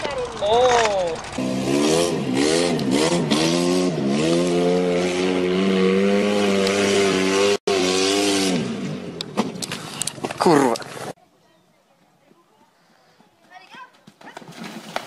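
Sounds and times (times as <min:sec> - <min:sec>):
buggy engine revving hard: 0:01.3 - 0:09.2.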